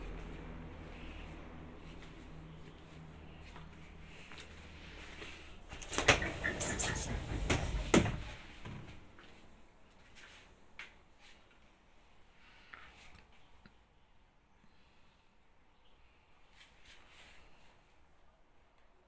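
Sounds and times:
door clicks and knocks: 0:05.8 - 0:08.9.

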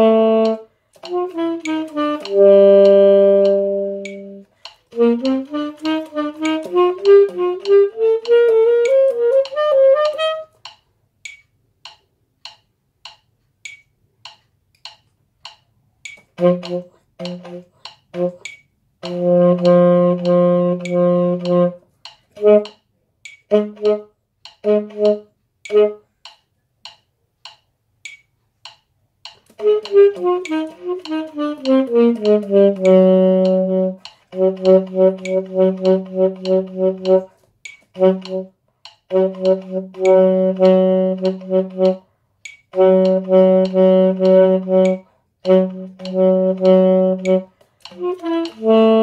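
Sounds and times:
baritone saxophone playing: 0:00.0 - 0:10.6, 0:16.3 - 0:22.8, 0:23.5 - 0:26.0, 0:29.5 - 0:42.1, 0:42.7 - 0:49.0
metronome clicking: 0:00.0 - 0:49.0.

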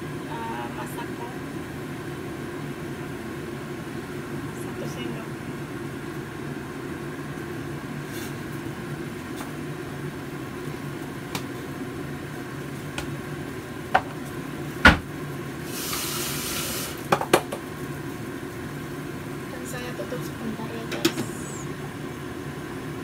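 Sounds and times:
soup simmering: 0:05.6 - 0:19.5
steady low hum: 0:17.0 - 0:23.0.

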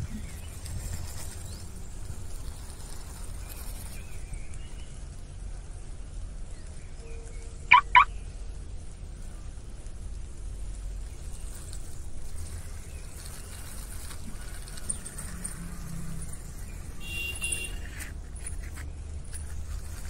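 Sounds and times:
toy car wheels rolling on concrete: 0:09.8 - 0:20.0.

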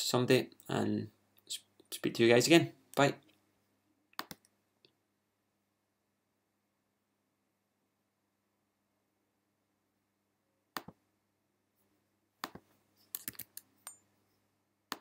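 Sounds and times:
computer clicks: 0:04.1 - 0:04.5, 0:12.4 - 0:14.0.

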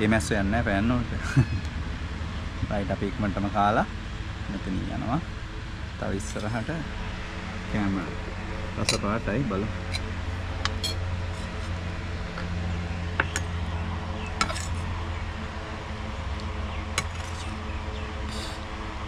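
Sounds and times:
electric fan humming: 0:00.0 - 0:19.0
metal spoon clinking on plates: 0:08.8 - 0:09.1, 0:10.6 - 0:11.5, 0:14.4 - 0:14.8.

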